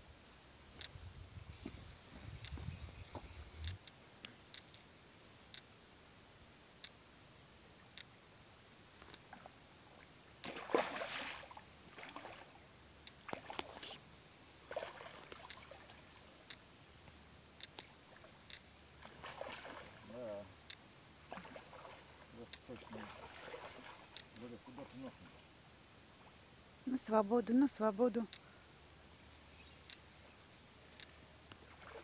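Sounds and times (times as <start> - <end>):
fish thrashing and splashing: 10.4 - 12.5
faint short clicks: 16.4 - 18.7, 29.7 - 30.1.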